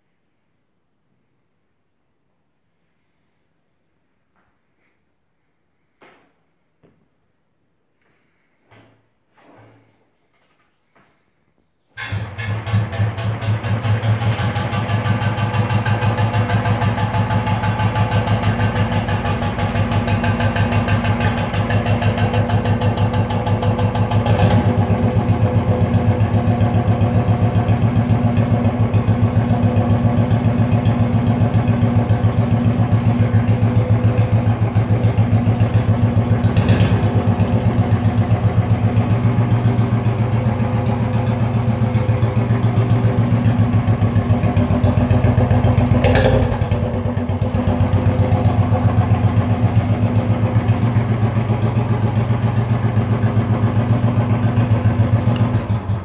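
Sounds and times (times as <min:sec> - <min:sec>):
motorcycle engine idling: 0:12.1 - 0:56.0.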